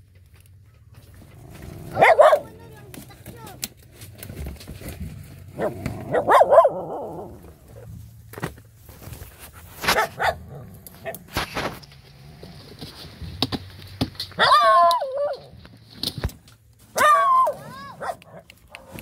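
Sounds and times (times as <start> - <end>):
twigs rustling and snapping: 0.0 - 6.1, 7.7 - 19.0
dog barking: 1.9 - 2.6, 5.6 - 7.2, 9.8 - 11.2, 14.4 - 15.5, 17.0 - 18.9.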